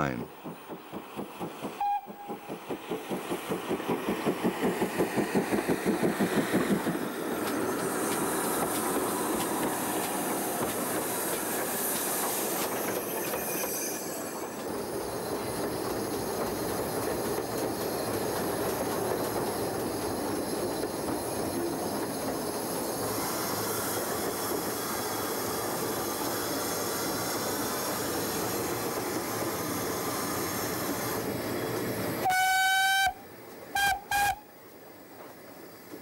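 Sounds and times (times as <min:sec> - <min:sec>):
steam locomotive wheels clattering: 0:00.0 - 0:31.9
steam whistle: 0:01.8 - 0:02.4, 0:32.2 - 0:34.5.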